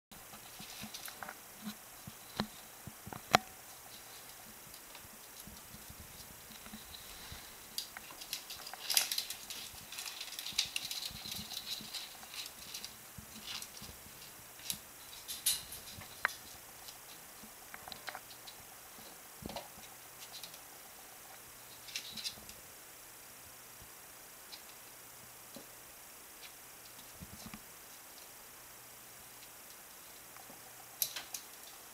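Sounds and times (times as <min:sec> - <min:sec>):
claws scratching on plastic pipes: 0:00.2 - 0:20.7, 0:21.6 - 0:22.6.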